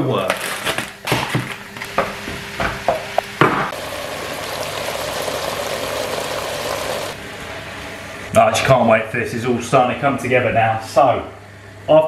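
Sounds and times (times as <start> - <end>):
meat sizzling in a pot: 3.7 - 7.2.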